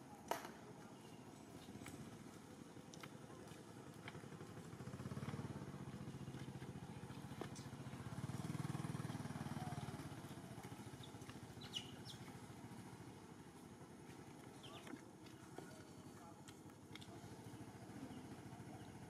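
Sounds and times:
motorcycle engine passing by: 3.3s - 14.8s, 17.0s - 19.0s.

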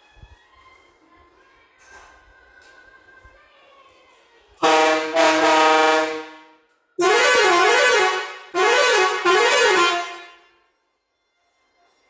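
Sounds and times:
warbling air horn blasts: 4.6s - 10.5s
air horn steady blast: 4.6s - 10.6s.

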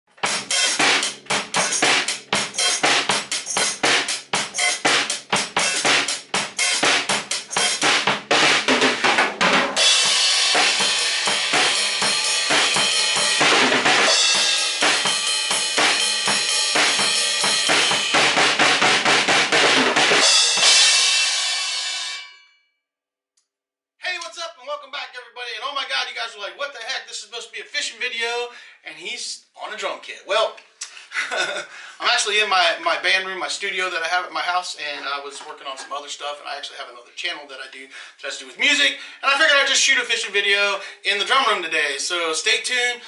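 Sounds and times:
drum kit playing: 0.1s - 22.2s
crash cymbals ringing: 20.2s - 22.6s.

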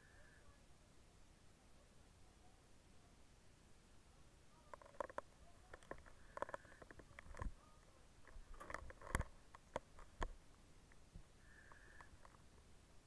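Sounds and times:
gear clicks and knocks: 8.2s - 10.4s.

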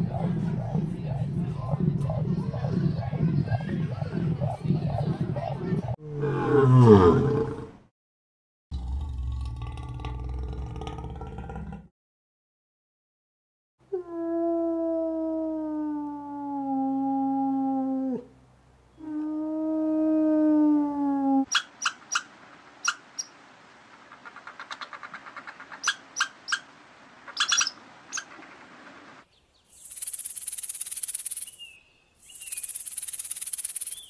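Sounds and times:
wolf howling: 13.9s - 18.3s, 19.0s - 21.5s
squirrel chirping and chattering: 21.5s - 34.0s.

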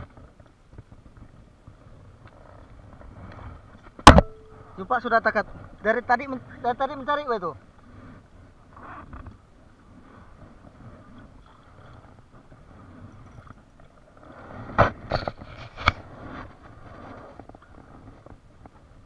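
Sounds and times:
water: 0.0s - 19.0s
wind: 0.0s - 19.0s.

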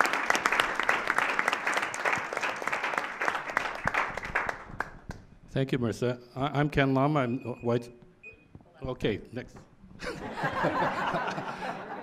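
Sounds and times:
audience clapping: 0.0s - 5.3s.

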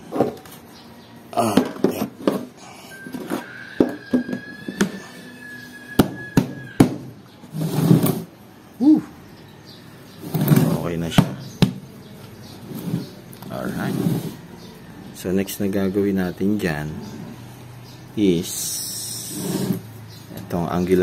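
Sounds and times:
steady high tone: 2.6s - 6.7s.

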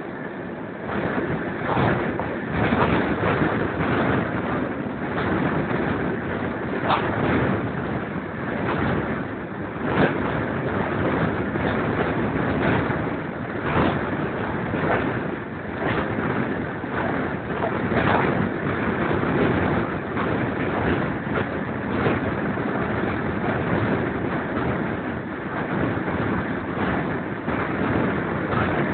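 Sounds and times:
sharp knocks of train: 0.0s - 28.9s
train running at speed: 0.0s - 28.9s
wind rushing over microphone: 0.0s - 28.9s.

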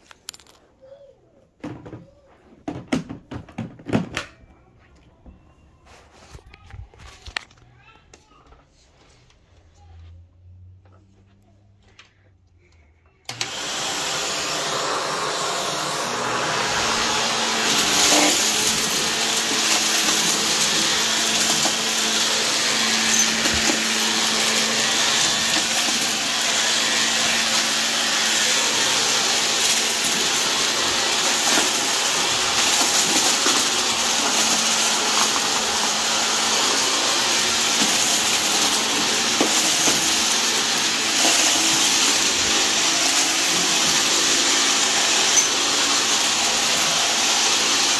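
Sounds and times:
vacuum cleaner running: 13.2s - 47.9s.

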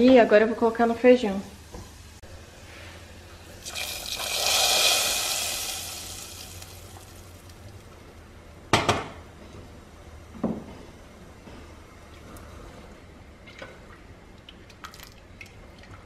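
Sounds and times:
hot fat sizzling: 3.2s - 8.1s.

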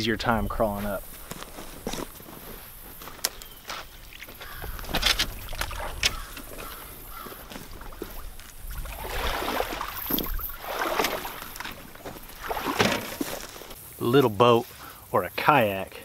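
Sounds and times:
water sloshing and splashing: 3.8s - 14.0s.

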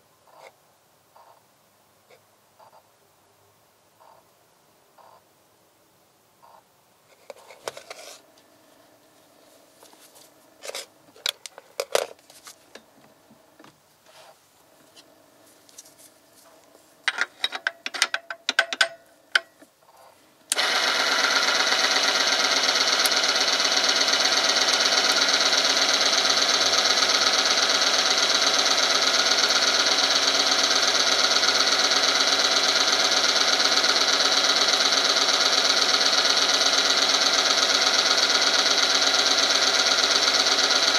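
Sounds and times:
short clinks and knocks: 17.1s - 19.7s
high-pitched mechanical whine: 19.1s - 40.9s.

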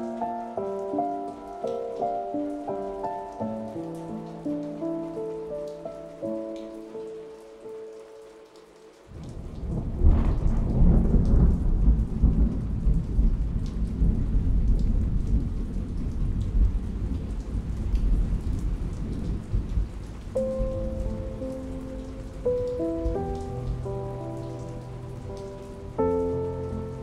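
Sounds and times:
raindrop ticks: 0.0s - 27.0s
steady downpour: 0.0s - 27.0s
thunder rumbling: 9.1s - 27.0s.

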